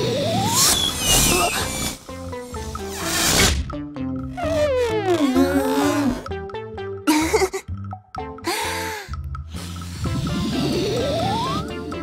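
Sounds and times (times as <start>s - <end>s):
light cartoon music: 0.0s - 12.0s.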